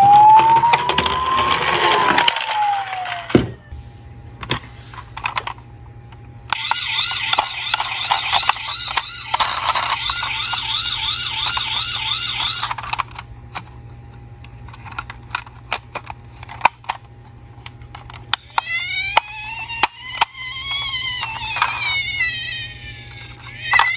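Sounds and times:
rising siren wail: 0.0s - 3.7s, 6.5s - 12.7s
toy siren warbling: 0.0s - 3.8s, 6.5s - 13.2s, 18.4s - 23.9s.

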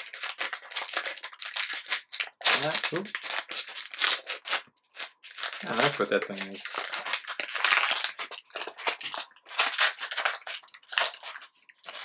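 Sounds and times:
card pack wrapper crinkling and tearing: 0.0s - 12.0s.

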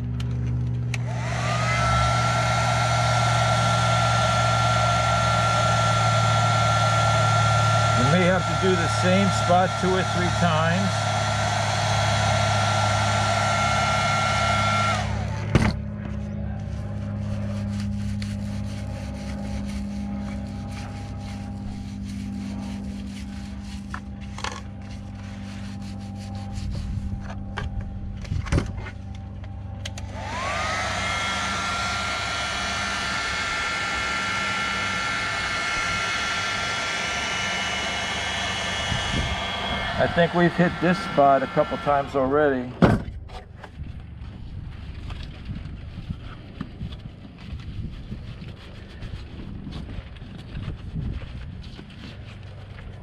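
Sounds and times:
low hum: 0.0s - 53.0s
heat gun whine: 0.9s - 15.7s, 29.8s - 42.6s.

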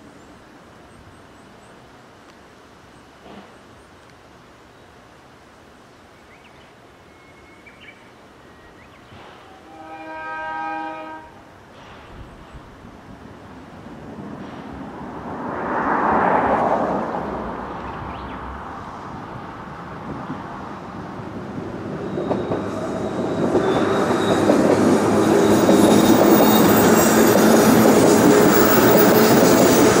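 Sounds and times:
electric train passing: 13.0s - 30.0s.

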